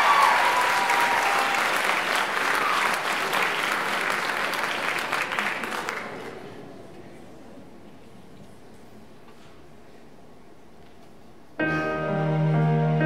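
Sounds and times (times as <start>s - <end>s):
people cheering: 0.0s - 5.7s
audience applauding: 0.0s - 6.5s.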